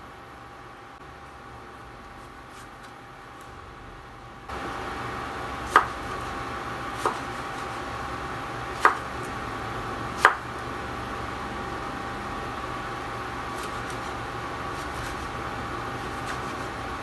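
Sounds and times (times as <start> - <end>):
knife slicing tomatoes: 5.6 - 7.9, 8.7 - 9.4, 13.5 - 15.4, 16.0 - 16.8.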